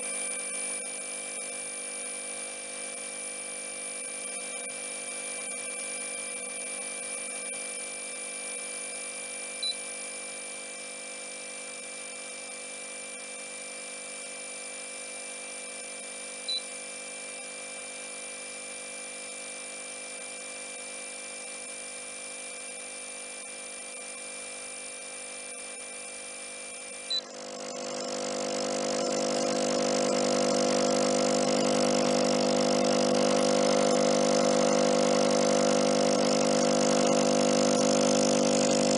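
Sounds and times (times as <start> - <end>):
air pump humming: 26.9 - 38.9.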